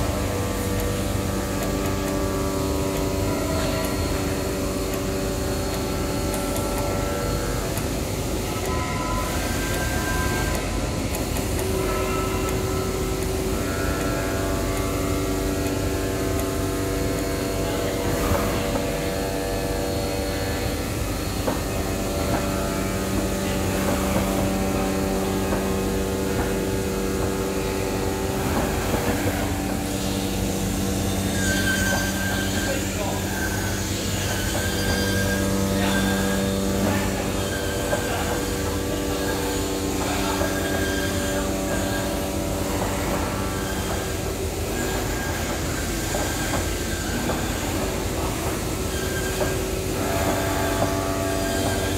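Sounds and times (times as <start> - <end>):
cutting machine humming: 0.0 - 51.9.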